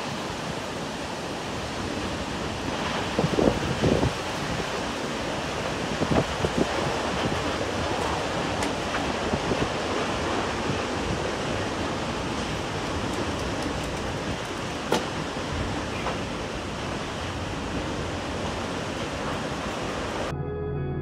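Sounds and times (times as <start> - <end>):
wind rushing over microphone: 0.0 - 20.3
slow ambient music: 20.2 - 21.0.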